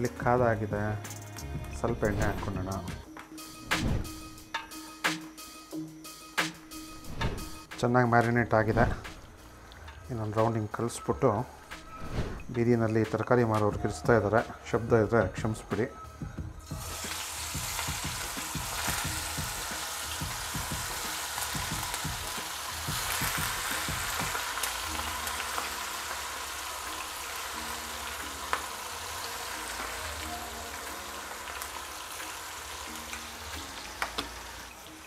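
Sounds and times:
chicken sizzling in hot oil: 0:16.6 - 0:35.0.

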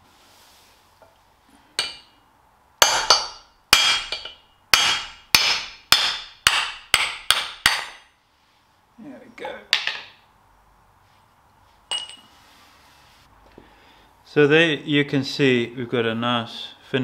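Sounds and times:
hammer striking metal bolt: 0:02.8 - 0:08.1.

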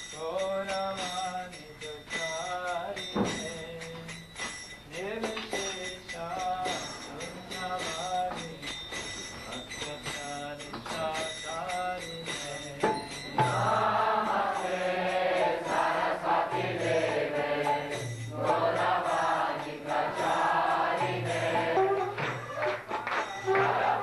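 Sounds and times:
group chanting in unison: 0:13.5 - 0:22.2, 0:23.5 - 0:24.0
hand drum strokes: 0:20.9 - 0:24.0.

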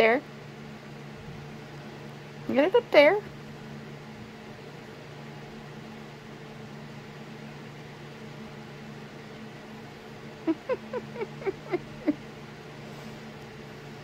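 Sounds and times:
fan humming: 0:00.0 - 0:14.0.

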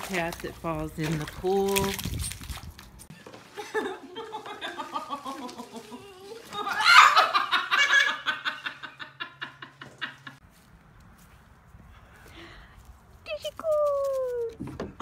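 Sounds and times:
hearty laughter: 0:03.4 - 0:10.4.

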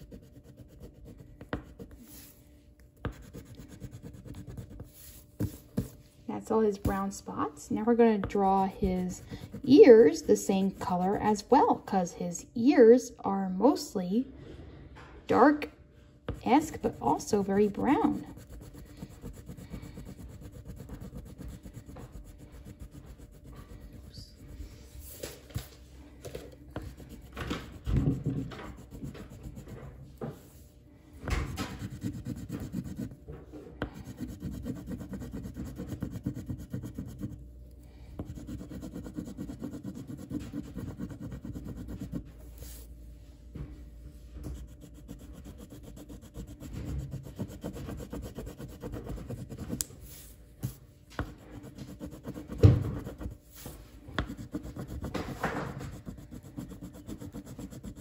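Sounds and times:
pencil shading on paper: 0:00.0 - 0:02.3, 0:03.0 - 0:06.0, 0:08.3 - 0:11.2, 0:16.3 - 0:24.5, 0:31.6 - 0:33.2, 0:33.9 - 0:37.4, 0:38.2 - 0:42.8, 0:44.6 - 0:49.8, 0:51.4 - 0:53.4, 0:54.2 - 0:58.0.

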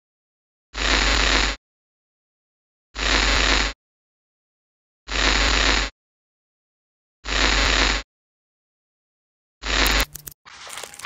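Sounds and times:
harsh bursts of static noise: 0:00.8 - 0:01.6, 0:07.3 - 0:08.0, 0:09.6 - 0:11.0.

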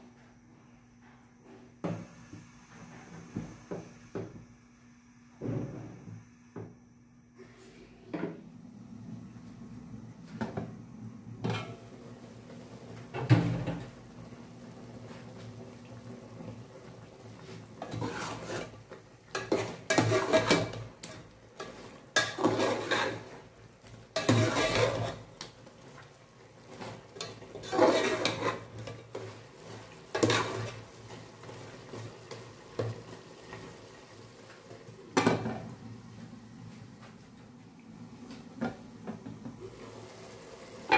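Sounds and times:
metal spoon stirring in pot: 0:17.8 - 0:23.4, 0:24.1 - 0:25.3, 0:27.2 - 0:29.2.

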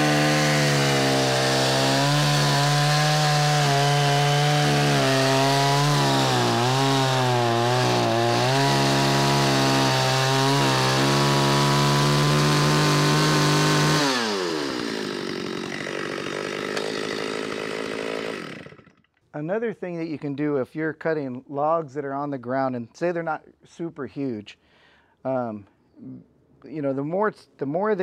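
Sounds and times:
chainsaw cutting log: 0:00.0 - 0:19.1
chainsaw engine idling: 0:00.0 - 0:19.1.

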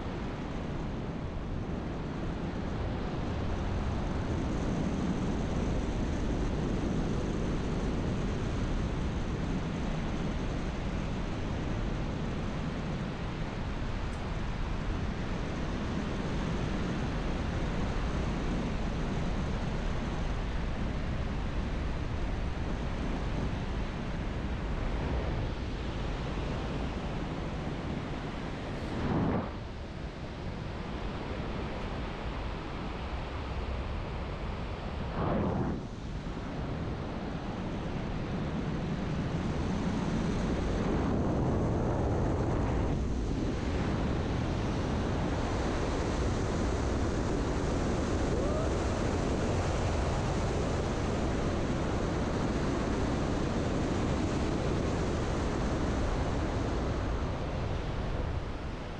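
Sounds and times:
wind on microphone: 0:00.0 - 0:58.9
wind whooshes: 0:34.8 - 0:37.2.

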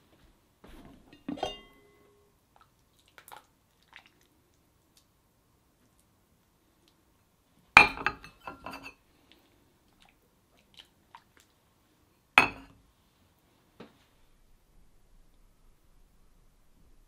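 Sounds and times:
light clinks and taps of dishes: 0:01.0 - 0:02.2, 0:07.8 - 0:09.0, 0:12.4 - 0:12.8
ceramic bowls clinking on saucers: 0:01.1 - 0:02.3, 0:07.8 - 0:09.0, 0:12.4 - 0:12.8.

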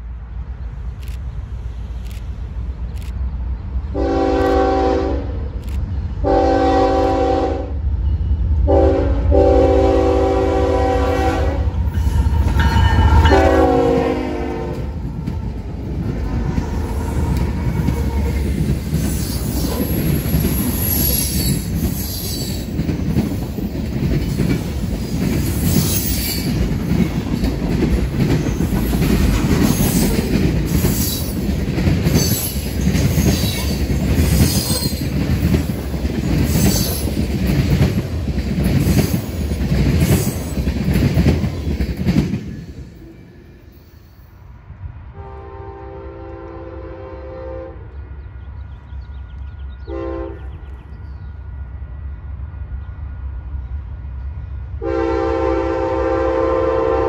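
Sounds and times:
train horn blasts: 0:03.9 - 0:05.5, 0:06.2 - 0:07.8, 0:08.6 - 0:15.0, 0:45.1 - 0:48.0, 0:49.8 - 0:50.6, 0:54.8 - 0:57.0
freight cars rumbling past: 0:07.7 - 0:45.0
train wheels squealing: 0:16.7 - 0:23.7, 0:25.0 - 0:26.6, 0:28.2 - 0:31.4, 0:32.1 - 0:35.2, 0:36.3 - 0:37.2, 0:42.5 - 0:44.4.

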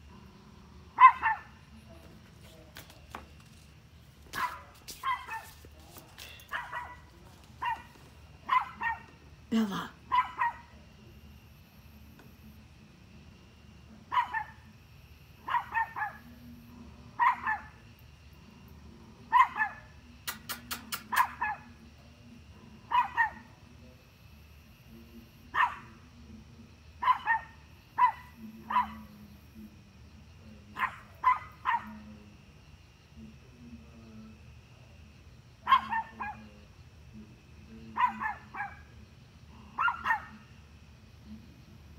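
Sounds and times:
small dog barking: 0:01.0 - 0:01.6, 0:04.3 - 0:05.6, 0:06.4 - 0:09.2, 0:10.1 - 0:10.8, 0:14.1 - 0:14.7, 0:15.4 - 0:16.4, 0:17.2 - 0:17.8, 0:19.3 - 0:20.0, 0:21.0 - 0:21.8, 0:22.8 - 0:23.6, 0:25.5 - 0:26.0, 0:27.0 - 0:29.1, 0:30.8 - 0:32.1, 0:35.6 - 0:36.5, 0:37.9 - 0:38.9, 0:39.6 - 0:40.5.

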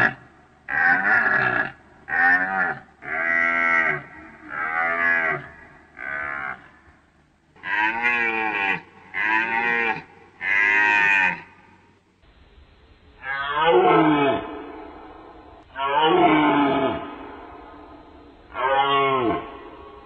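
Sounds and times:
deer calling: 0:00.0 - 0:06.9, 0:07.6 - 0:11.8.

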